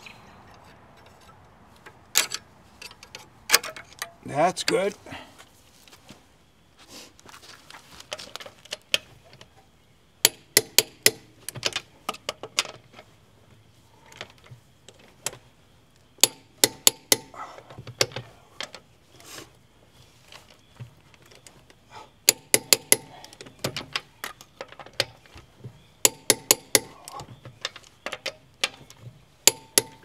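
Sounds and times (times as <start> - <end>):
sharp metallic clicks of hand tool: 10.2 - 12.7, 16.2 - 17.3, 22.2 - 25.2, 26.0 - 28.8, 29.4 - 30.0.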